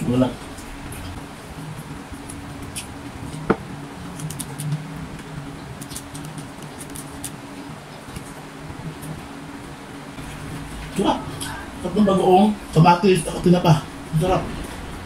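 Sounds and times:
steady low hum: 0.0s - 15.0s
man chewing food: 1.7s - 9.2s.

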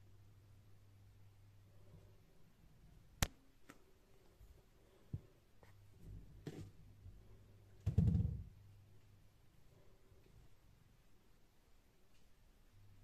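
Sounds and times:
low rumble of ball rolling: 7.8s - 8.8s.

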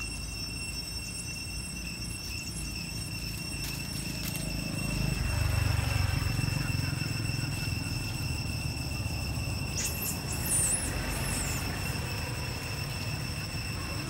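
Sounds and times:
steady high whine: 0.0s - 14.0s
high-pitched animal squeaks: 9.6s - 12.0s.

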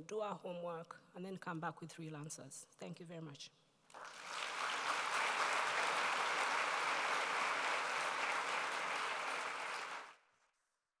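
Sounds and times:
audience applauding: 3.9s - 10.2s.

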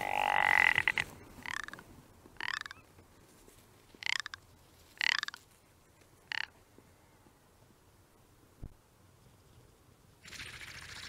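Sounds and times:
ptarmigan rattling croaking call: 0.0s - 1.8s, 2.4s - 2.9s, 4.0s - 5.4s, 6.2s - 6.6s.

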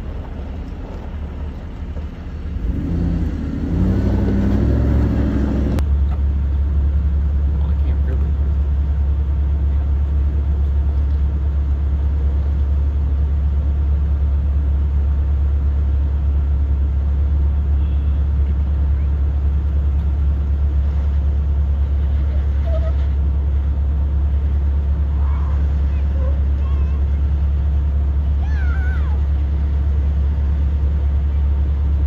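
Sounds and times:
low engine rumble: 0.0s - 32.0s
faint voices: 25.0s - 29.4s.

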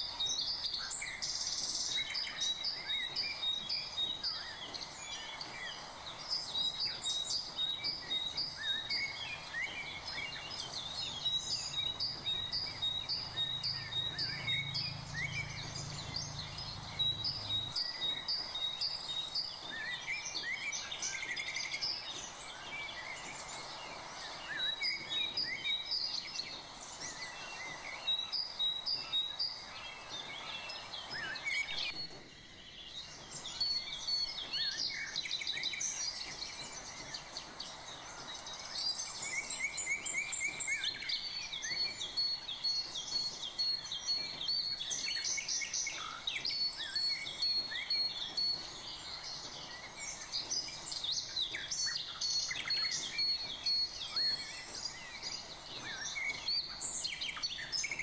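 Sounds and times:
low background hiss: 0.0s - 58.0s
small birds chirping: 0.0s - 58.0s.

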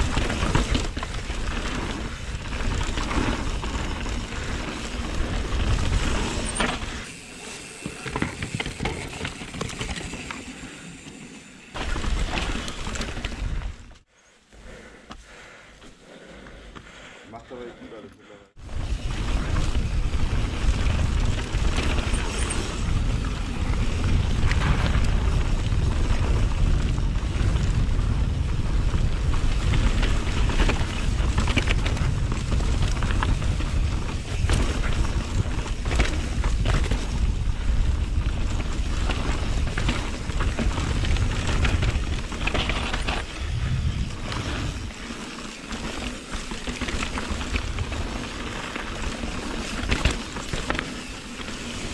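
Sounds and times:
bike frame and chain rattling: 0.0s - 13.9s, 18.7s - 51.9s
wind buffeting microphone: 18.6s - 45.0s.

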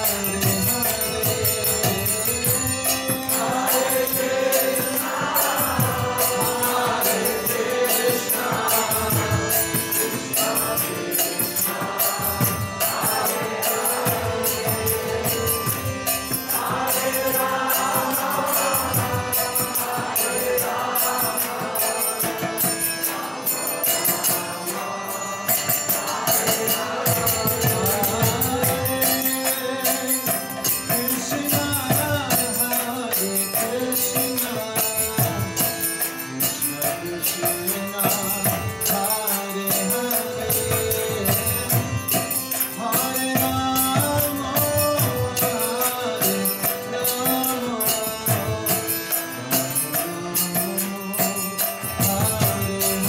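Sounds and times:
harmonium chords: 0.0s - 53.0s
man chanting a devotional melody: 0.0s - 53.0s
small hand cymbals: 0.0s - 53.0s.

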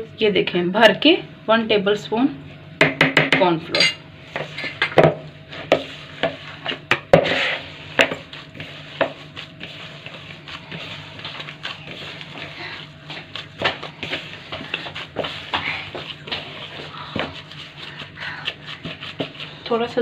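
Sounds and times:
knocks against plastic bowl: 2.8s - 3.5s
dough squishing by hand: 4.2s - 20.0s.

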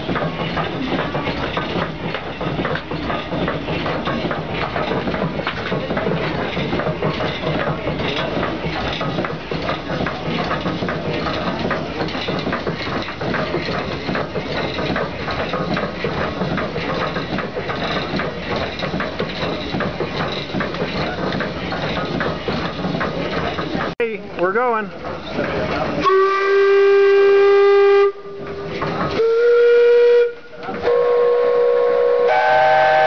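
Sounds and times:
engine gears clattering: 0.0s - 26.0s.

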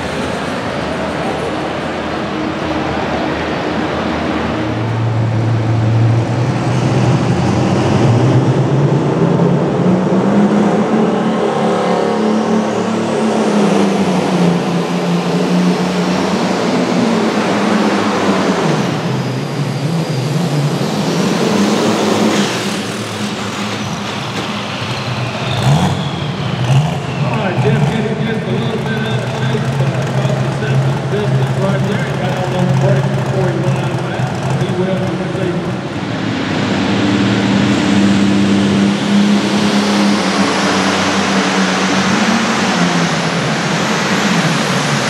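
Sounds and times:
tractor engine under load: 21.7s - 35.9s
high whistle: 25.4s - 27.5s.

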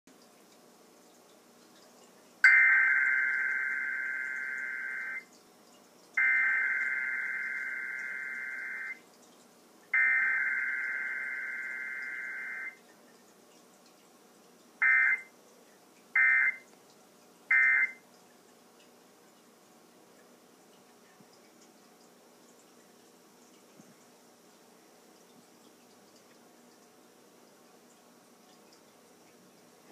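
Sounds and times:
buzzy warbling data bursts: 2.4s - 5.2s, 6.2s - 9.0s, 10.0s - 12.8s.

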